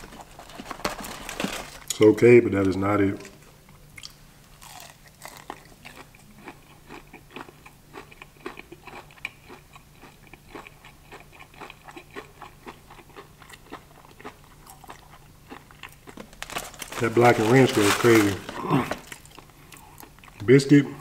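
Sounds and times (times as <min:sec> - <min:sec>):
crunchy chewing: 0:04.0 - 0:20.5.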